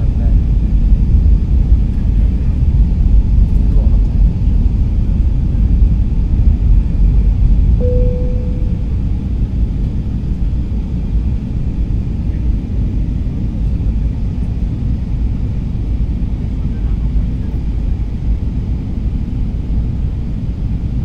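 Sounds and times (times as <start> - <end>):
airliner cabin engine rumble: 0.0 - 21.0
brief cabin tone: 7.8 - 9.4.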